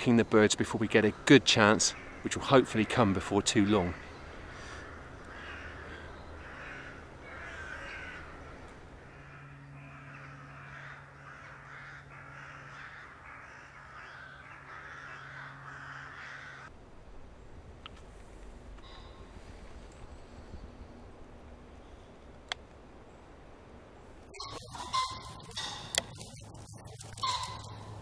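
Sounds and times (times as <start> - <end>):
crows cawing: 1.6 - 16.7, 18.8 - 19.2, 24.4 - 26.2, 27.0 - 28.0.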